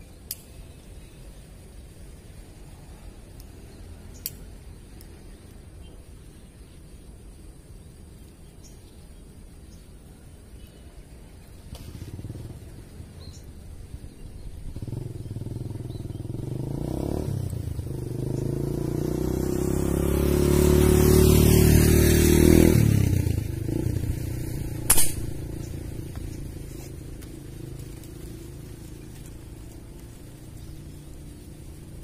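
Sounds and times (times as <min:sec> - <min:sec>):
vehicle engine passing: 0:14.7 - 0:32.0
air rifle firing crack: 0:24.8 - 0:25.4.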